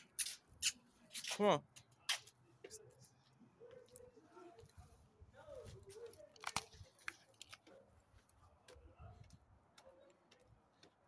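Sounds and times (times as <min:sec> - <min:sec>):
faint footsteps on stairs: 0:07.6 - 0:11.0.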